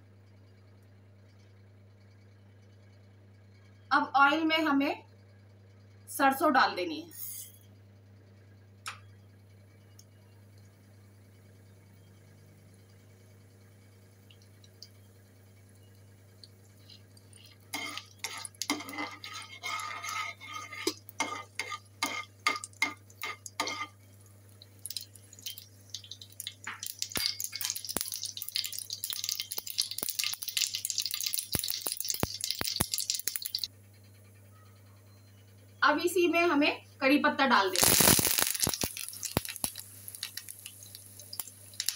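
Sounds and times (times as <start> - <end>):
seeds crackling and popping in oil: 12.7 - 33.7, 37.6 - 41.9.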